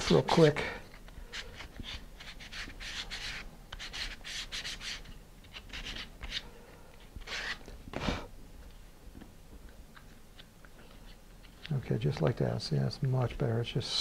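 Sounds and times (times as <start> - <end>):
scratchy sanding strokes: 1.3 - 6.4.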